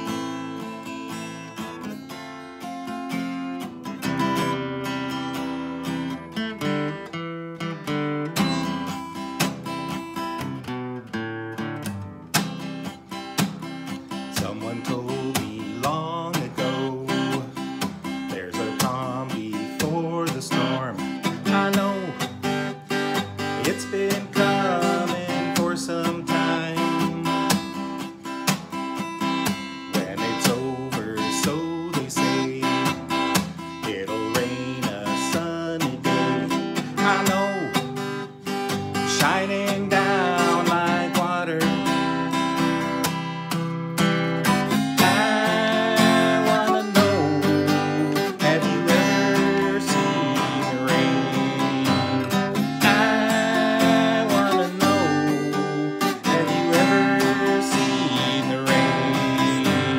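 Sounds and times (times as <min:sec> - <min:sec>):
acoustic guitar strumming: 0:00.0 - 0:59.9
man singing: 0:14.2 - 0:28.1, 0:29.8 - 0:42.8, 0:44.5 - 0:59.9.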